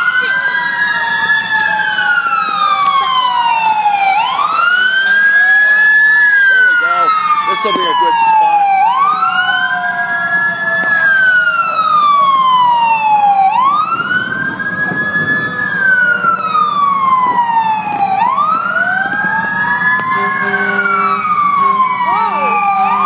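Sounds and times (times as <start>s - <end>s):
second fainter siren: 0.0s - 23.0s
siren wailing: 0.0s - 23.0s.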